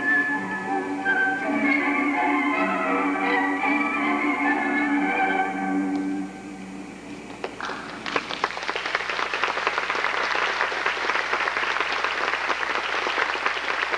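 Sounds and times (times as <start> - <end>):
audience applauding: 7.4 - 13.9.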